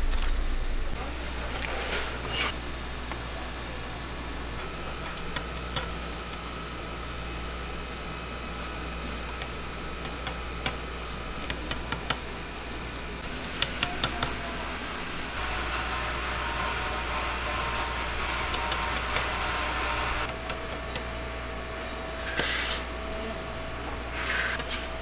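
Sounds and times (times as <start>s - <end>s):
knife scraping cutting board: 22.2s - 22.9s, 24.1s - 24.9s.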